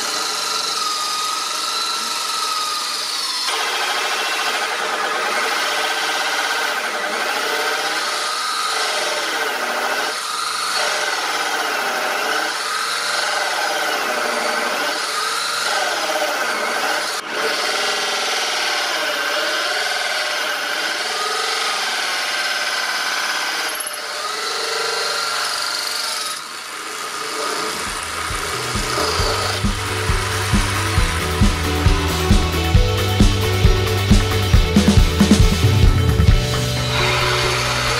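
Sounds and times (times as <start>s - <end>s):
electric drill cutting with hole saw: 0.0s - 37.9s
music: 27.9s - 37.9s.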